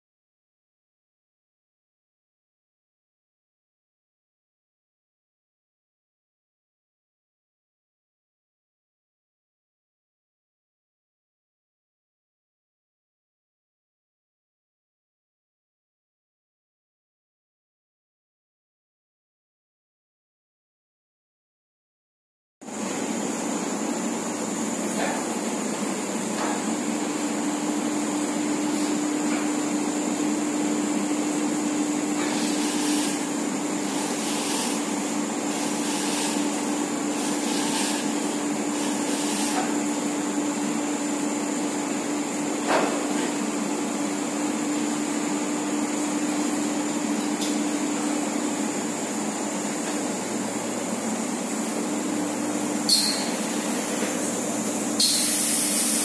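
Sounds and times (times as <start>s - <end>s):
conveyor machinery hum: 22.7s - 56.0s.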